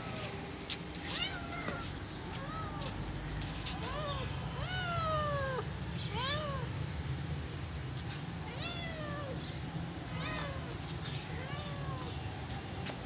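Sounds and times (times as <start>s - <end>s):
kitten meowing: 3.8s - 6.7s, 8.5s - 9.4s, 10.1s - 12.1s.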